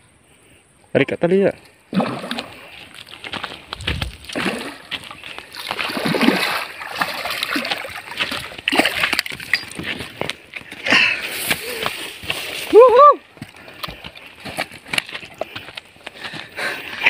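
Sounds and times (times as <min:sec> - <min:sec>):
fish splashing in water: 0:01.9 - 0:03.4, 0:04.0 - 0:09.5.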